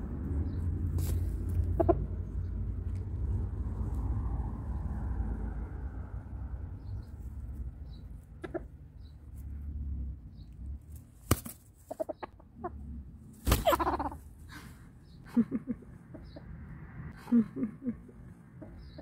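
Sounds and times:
rooster clucking: 1.6 - 2.1, 8.4 - 8.8, 11.8 - 12.9, 13.5 - 14.4.

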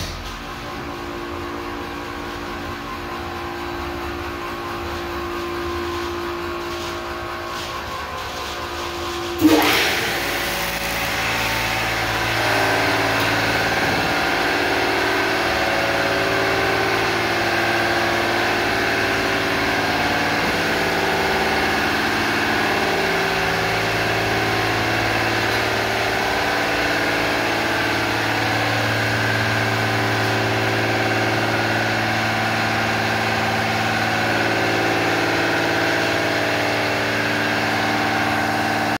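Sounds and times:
pump motors humming and whining: 0.0 - 39.0.

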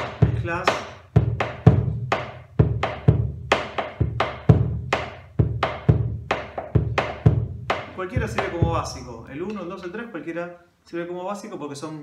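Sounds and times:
deep drum strokes on hide: 4.0 - 9.6.

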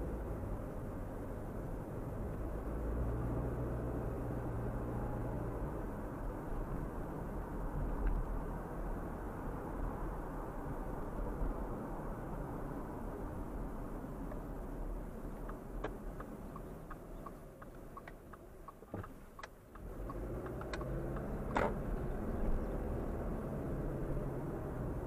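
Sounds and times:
car road and engine noise: 0.0 - 25.0
turn signal ticking: 15.1 - 22.9.

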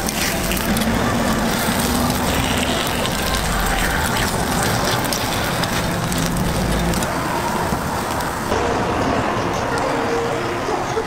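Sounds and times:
batter sizzling on griddle: 0.0 - 8.5
low rumble: 0.1 - 9.5.

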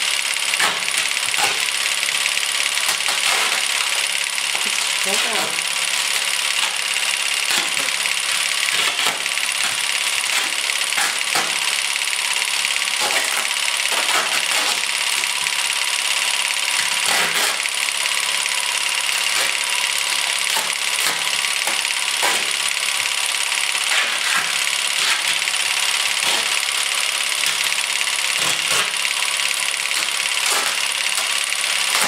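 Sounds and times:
adhesive tape unrolling: 0.6 - 1.7, 2.8 - 4.8, 7.4 - 11.8, 13.0 - 15.6, 16.7 - 17.7, 19.1 - 22.7.

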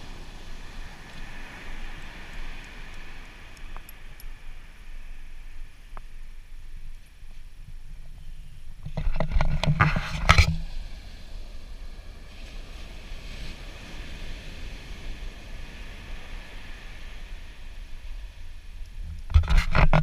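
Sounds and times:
surf hiss: 0.0 - 20.0
wind rumbling on microphone: 0.0 - 20.0
knocks and rubbing: 8.8 - 10.6.

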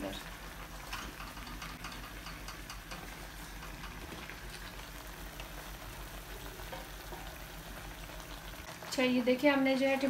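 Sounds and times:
food sizzling and bubbling: 0.0 - 10.0
wooden spatula ticks: 0.9 - 4.8.

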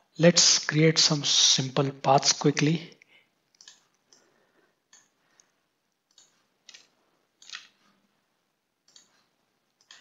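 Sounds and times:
faint computer mouse clicks: 3.5 - 4.3, 8.8 - 10.0.

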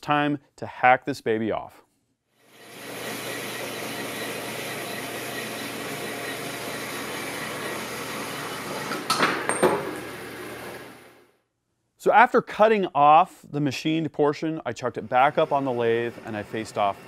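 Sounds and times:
metal-cutting bandsaw running: 2.5 - 11.2, 15.1 - 17.0.

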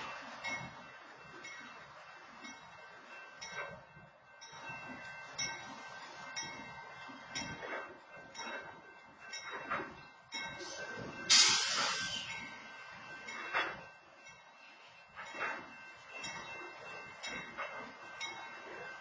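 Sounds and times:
train wheels clanking over rails: 0.0 - 19.0
loud hiss: 10.7 - 12.5.

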